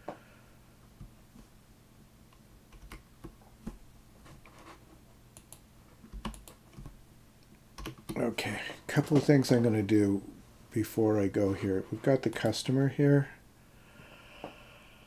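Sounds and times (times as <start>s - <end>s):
keyboard keystrokes: 6.2s - 6.9s.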